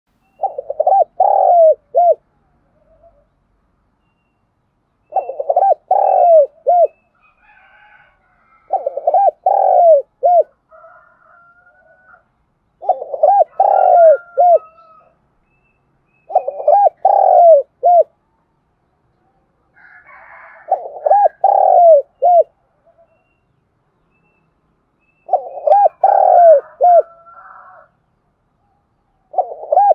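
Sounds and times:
faint bird calls: 0.2s - 3.4s, 5.0s - 18.5s, 19.1s - 23.6s, 24.2s - 28.0s, 28.6s - 29.9s
dove cooing: 0.4s - 3.3s, 5.1s - 7.6s, 8.4s - 11.0s, 12.8s - 15.1s, 16.3s - 18.2s, 20.0s - 23.2s, 25.2s - 27.9s, 29.2s - 29.9s.

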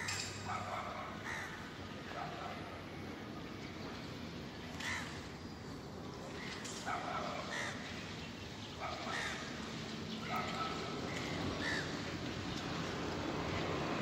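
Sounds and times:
crows cawing: 1.2s - 1.7s, 4.8s - 5.2s, 7.4s - 7.9s, 9.1s - 9.6s, 11.6s - 12.0s.

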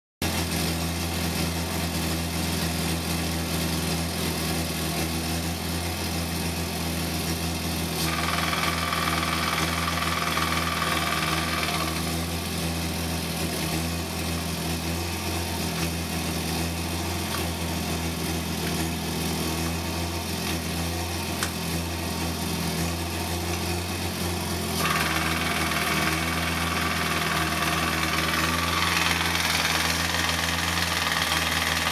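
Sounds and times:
high whirring: 24.8s - 31.9s.

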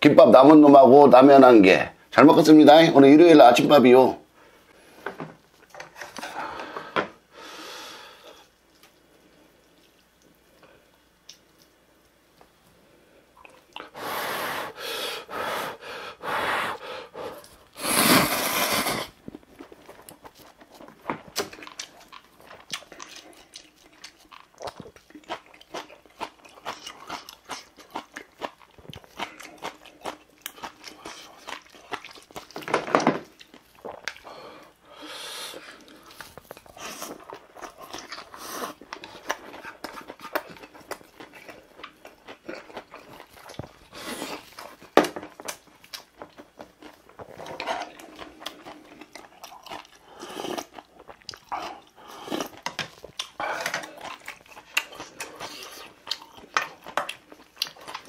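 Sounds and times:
wet chewing and smacking: 8.4s - 12.6s, 13.3s - 14.0s, 19.1s - 34.8s, 35.6s - 58.0s.

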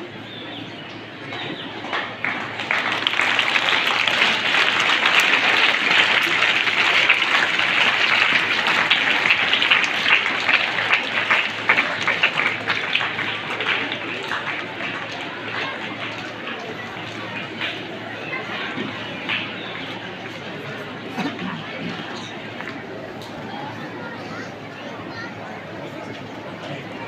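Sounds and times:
crowd applauding: 1.3s - 27.0s.

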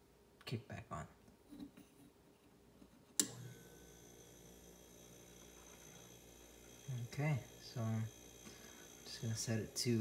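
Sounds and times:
freezer compressor humming: 3.2s - 10.0s.

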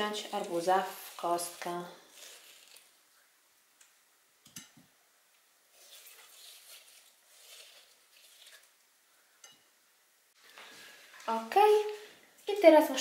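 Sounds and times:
wet scraping of melon baller: 0.0s - 3.1s, 5.7s - 8.8s.

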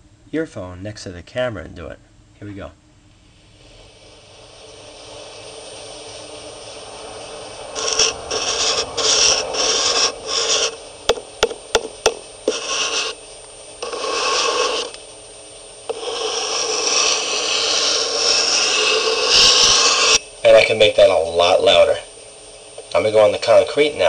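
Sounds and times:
faint high whine: 0.0s - 24.0s
finger rubbing on wood: 7.8s - 10.8s, 12.5s - 13.2s, 13.8s - 15.0s, 15.9s - 20.2s
sharp taps: 11.1s - 12.6s.

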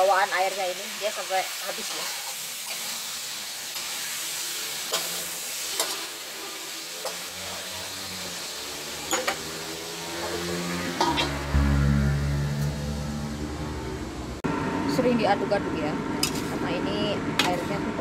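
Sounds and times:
food sizzling in a wok: 0.0s - 13.1s, 16.2s - 16.6s
metal spatula scraping a wok: 1.7s - 8.4s, 9.0s - 12.7s
low rumble: 11.3s - 15.0s.

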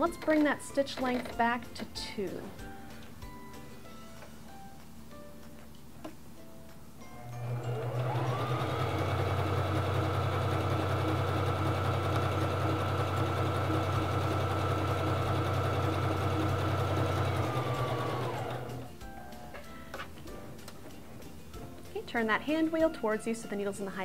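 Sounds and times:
sewing machine stitching: 7.3s - 18.9s.

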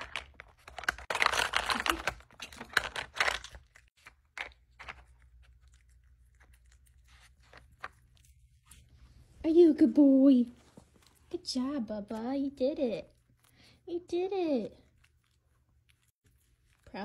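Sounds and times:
plastic pieces clicking: 0.0s - 3.6s
dog crunching kibble: 0.0s - 8.9s.

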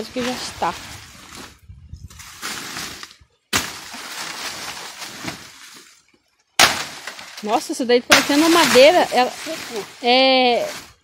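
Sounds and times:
brush hook hacking dry stem: 6.6s - 7.5s.

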